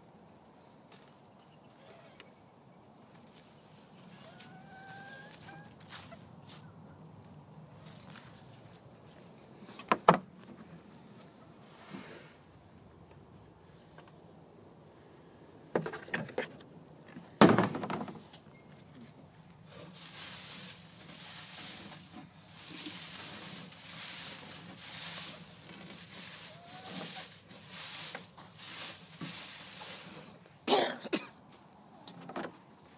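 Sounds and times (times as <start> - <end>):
straw rustling and crackling: 7.2 - 9.7, 17.8 - 30.6.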